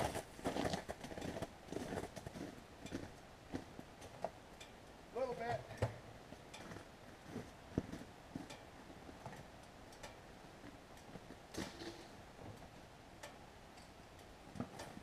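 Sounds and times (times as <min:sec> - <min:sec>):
background hiss: 0:00.0 - 0:15.0.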